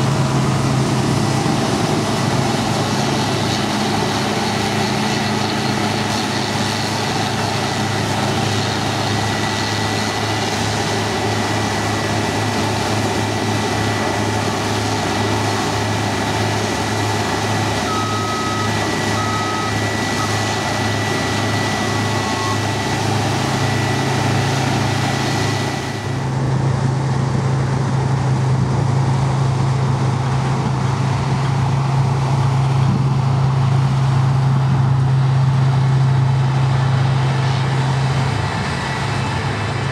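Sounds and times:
combine harvester drone: 0:00.0 - 0:39.9
low engine hum: 0:00.0 - 0:39.9
thin high whine: 0:17.3 - 0:26.3
short beeps: 0:17.8 - 0:22.9.

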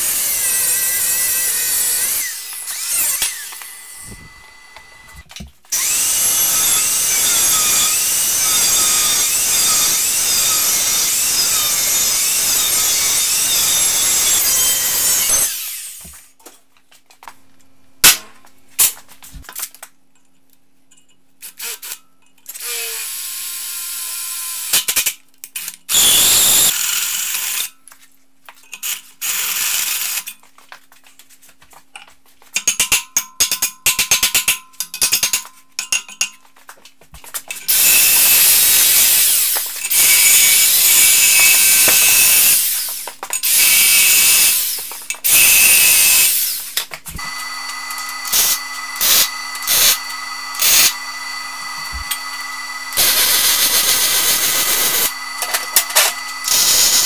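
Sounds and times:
hole saw cutting steel: 0:00.0 - 0:05.1, 0:05.7 - 0:16.1, 0:25.9 - 0:27.7, 0:37.7 - 0:57.0
angle grinder cutting steel: 0:00.0 - 0:16.1, 0:25.9 - 0:27.7, 0:37.6 - 0:57.0
drill press motor humming: 0:47.2 - 0:57.0.

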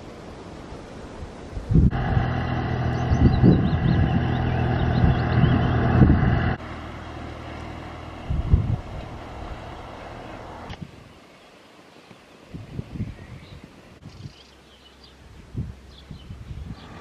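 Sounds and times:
wind gusts on microphone: 0:00.0 - 0:06.6, 0:08.0 - 0:11.2, 0:12.4 - 0:14.5, 0:15.2 - 0:17.0
tractor engine running: 0:01.9 - 0:10.8
birds chirping: 0:01.9 - 0:17.0.

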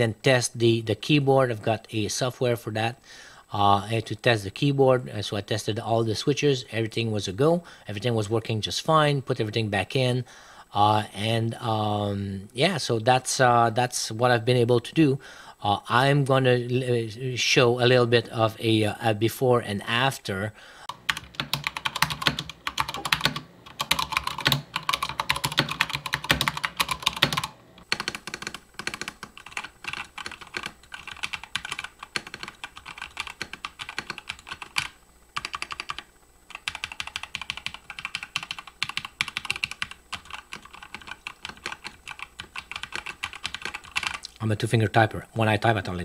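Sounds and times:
mechanical keyboard typing: 0:21.0 - 0:44.3.

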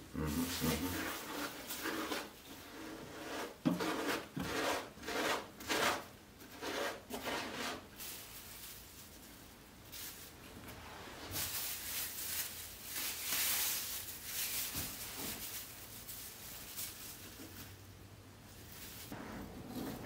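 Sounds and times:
plastic wrap rustling and crinkling: 0:07.9 - 0:20.0.

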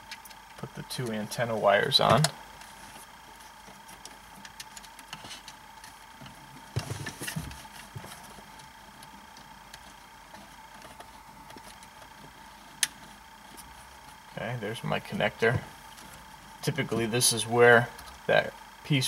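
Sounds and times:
faint steady hum: 0:00.0 - 0:19.0
rustling and knocking: 0:06.2 - 0:12.3.

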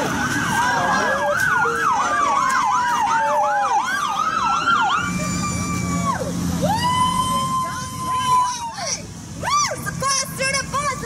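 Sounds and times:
slowly falling siren tone: 0:00.0 - 0:07.9
siren fast yelp: 0:00.4 - 0:08.7.

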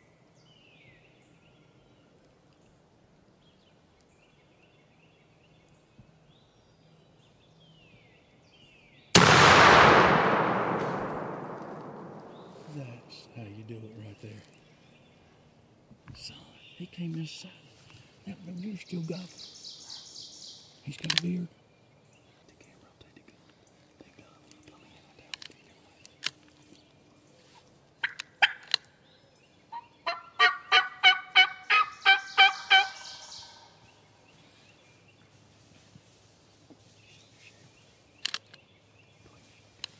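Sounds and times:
shotgun blast with echo: 0:09.2 - 0:13.1
turkey yelping: 0:28.0 - 0:28.6, 0:29.7 - 0:33.7.

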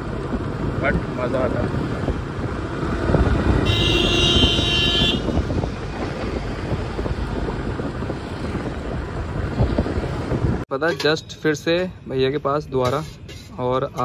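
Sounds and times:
wind buffeting microphone: 0:00.0 - 0:10.7
road and traffic rumble: 0:00.0 - 0:14.0
vehicle horn: 0:03.6 - 0:05.5.

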